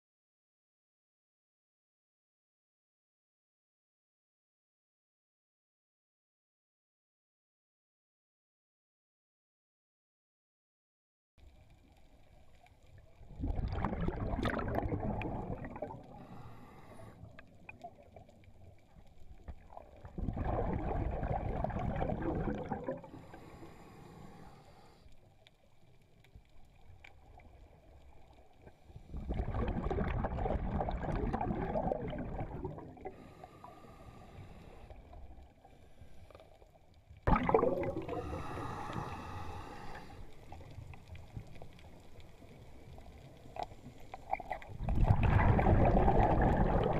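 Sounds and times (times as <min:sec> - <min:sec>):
exhaled bubbles underwater: 0:13.2 - 0:16.5, 0:17.3 - 0:23.6, 0:28.6 - 0:33.8, 0:37.2 - 0:41.7, 0:42.6 - 0:46.9
faint gurgling and hiss: 0:15.7 - 0:17.7, 0:22.9 - 0:25.4, 0:32.4 - 0:36.9, 0:37.5 - 0:44.8.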